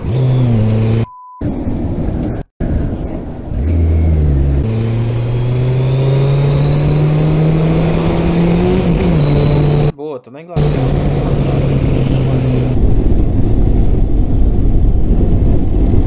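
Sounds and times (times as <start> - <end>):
motorcycle engine accelerating: 0.0 - 1.1, 2.2 - 9.9, 10.6 - 16.0.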